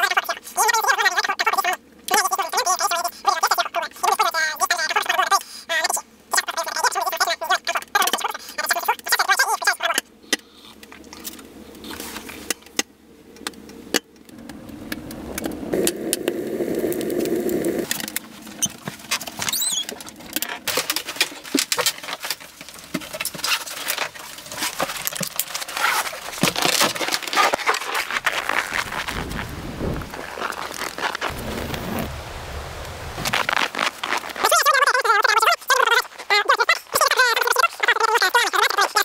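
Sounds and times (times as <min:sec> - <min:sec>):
rustling: 0:17.1 - 0:36.3
clicks and knocks of handling things: 0:17.9 - 0:28.4.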